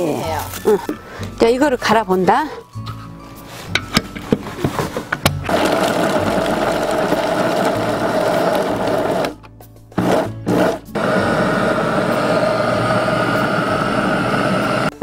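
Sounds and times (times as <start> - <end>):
electric grinder motor whine: 5.5 - 9.4, 10.0 - 15.0.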